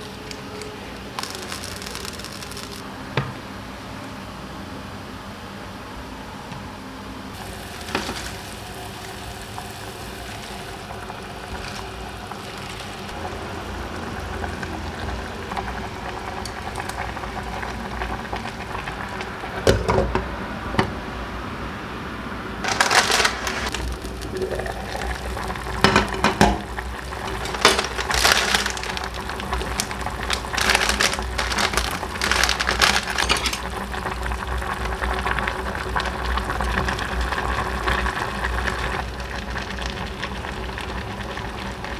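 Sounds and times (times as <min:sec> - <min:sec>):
cooking hiss: 0:00.0 - 0:02.9, 0:07.4 - 0:20.2, 0:22.6 - 0:41.9
kitchen clatter: 0:07.8 - 0:08.6, 0:25.7 - 0:34.0.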